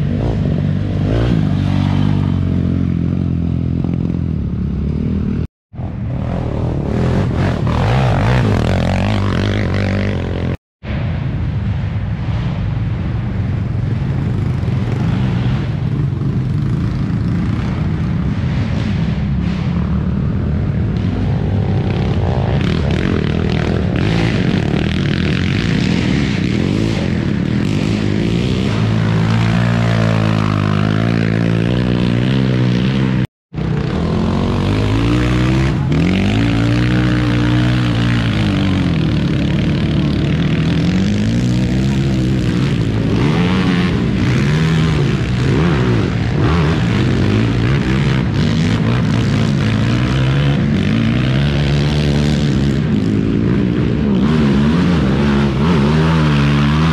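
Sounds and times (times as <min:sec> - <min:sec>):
quad engines revving: 0:00.0 - 0:05.5, 0:06.1 - 0:10.6, 0:14.4 - 0:56.9.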